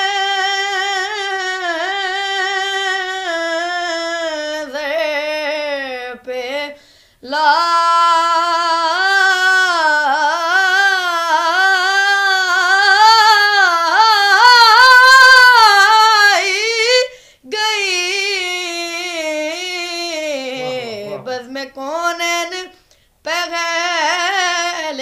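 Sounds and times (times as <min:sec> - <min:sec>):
boy singing unaccompanied: 0:00.0 - 0:22.7.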